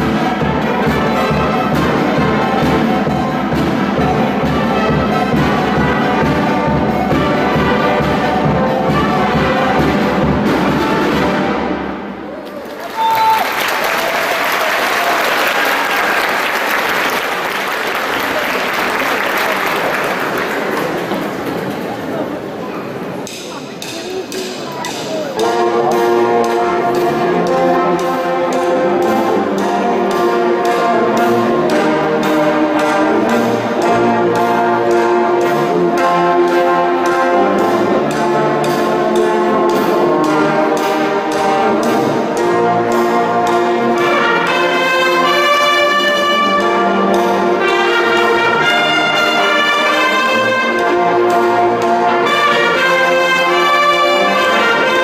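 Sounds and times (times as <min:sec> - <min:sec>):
steady drum beat: 0:00.0 - 0:11.8
wind band playing: 0:00.0 - 0:21.9, 0:24.4 - 0:55.0
higher brass: 0:39.3 - 0:55.0.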